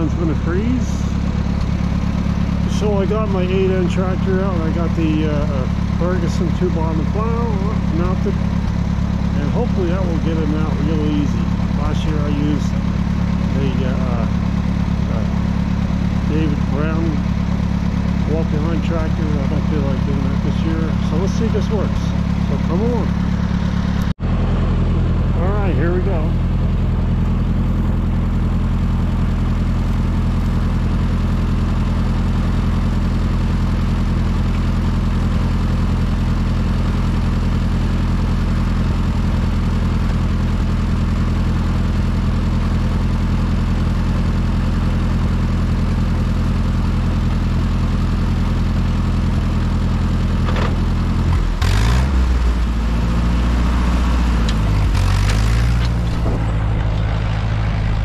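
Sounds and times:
tractor engine: 0.0 - 58.0
clunks: 50.2 - 51.7, 54.4 - 58.0.

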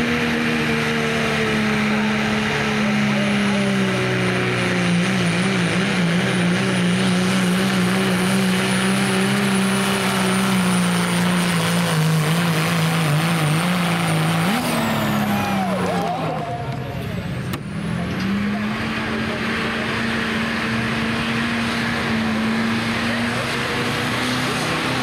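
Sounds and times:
diesel engine at full throttle: 0.0 - 25.0
high turbo whine: 0.0 - 25.0.

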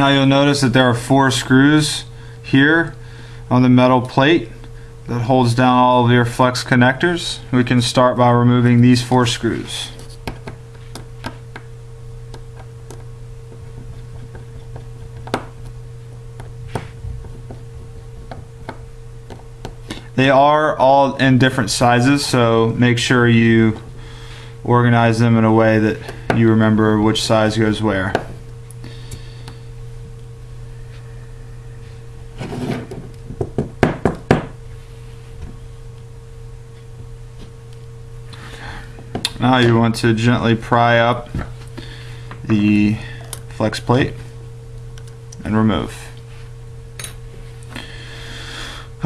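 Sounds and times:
steady low hum: 0.0 - 49.0
scrape on wooden surface: 32.4 - 33.0.

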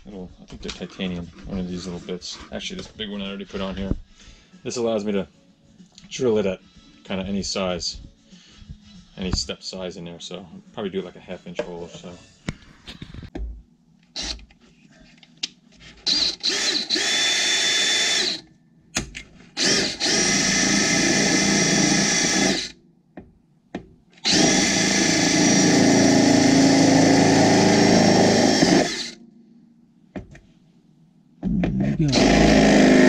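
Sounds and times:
cordless drill cutting aluminum: 14.2 - 14.4, 16.0 - 18.4, 19.6 - 22.8, 24.2 - 29.2, 32.1 - 33.0.

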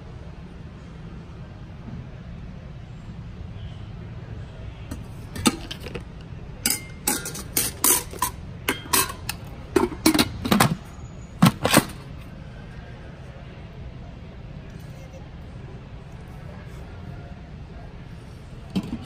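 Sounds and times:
metal and plastic clanks: 6.7 - 12.1.

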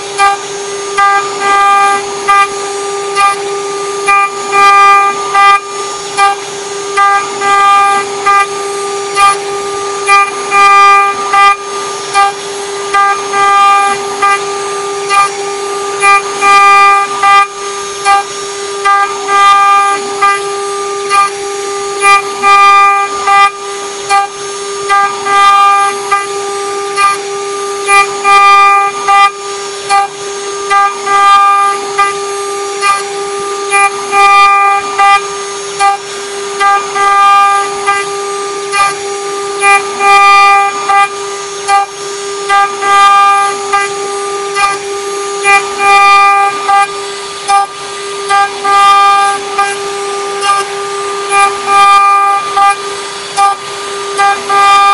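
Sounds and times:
end mill cutting metal: 0.0 - 54.9
machine spindle whine: 0.0 - 54.9.

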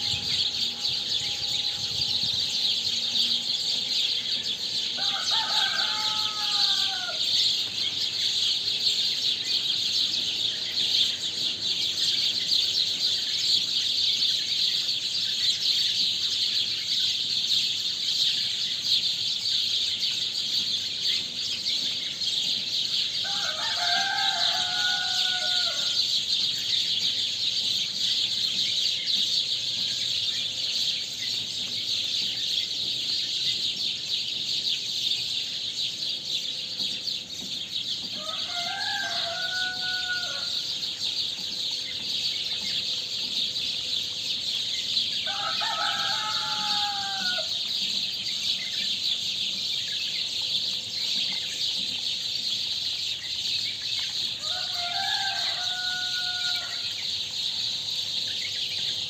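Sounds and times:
small birds chirping: 0.0 - 59.0.

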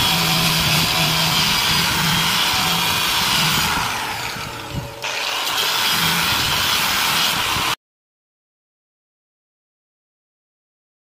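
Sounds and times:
grinder sanding metal: 0.0 - 7.8.

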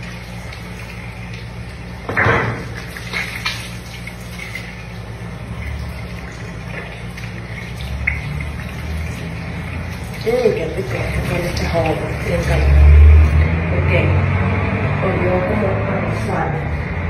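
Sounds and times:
tap water running into sink: 0.0 - 13.6
low steady hum: 0.0 - 17.0.

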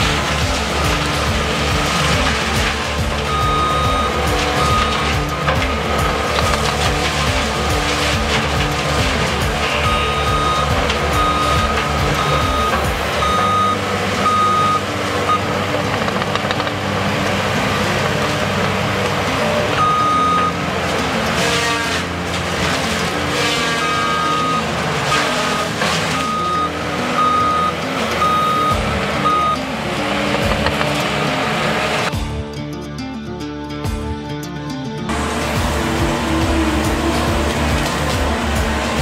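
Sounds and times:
diesel loader engine under load: 0.0 - 32.7, 35.1 - 39.0
back-up alarm beeping: 3.2 - 5.1, 9.8 - 15.5, 19.8 - 20.6, 23.8 - 24.7, 26.2 - 29.6.

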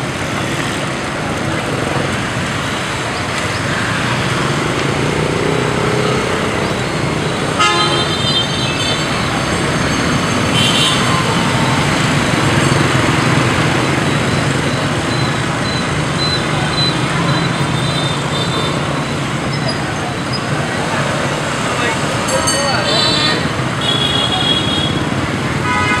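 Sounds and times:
motorbike and scooter traffic: 0.0 - 26.0
horn beep: 6.8 - 11.4, 13.9 - 20.4
higher short horn toot: 7.6 - 8.6.

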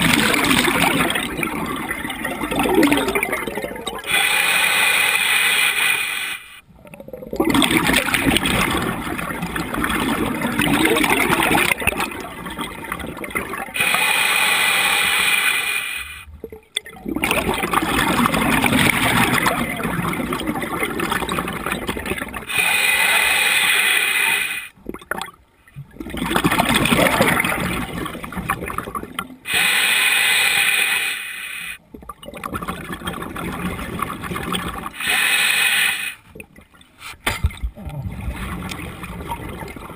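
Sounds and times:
gurgling exhaled bubbles: 0.0 - 4.2, 6.7 - 14.0, 16.3 - 22.8, 24.7 - 29.5, 31.9 - 35.3, 37.4 - 39.9
regulator hissing inhale: 22.5 - 24.7, 29.5 - 31.8, 35.0 - 36.2.

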